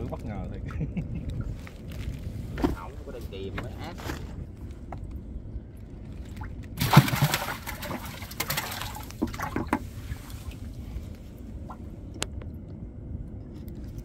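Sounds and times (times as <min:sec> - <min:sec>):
water splashing and trickling: 0:06.0 - 0:11.0.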